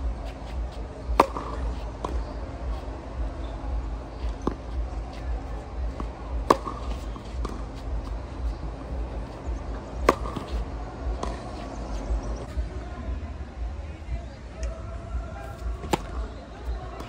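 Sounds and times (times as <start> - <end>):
wind rumble on microphone: 0.0 - 17.0
tennis racket striking ball: 0.3 - 2.4, 4.2 - 11.8, 15.6 - 16.3.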